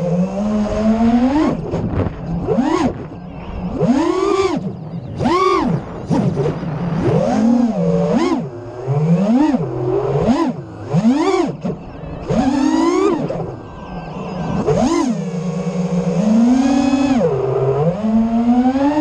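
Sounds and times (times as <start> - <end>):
drone motors whining: 0.0 - 19.0
wind rush: 0.6 - 4.0, 4.6 - 7.8.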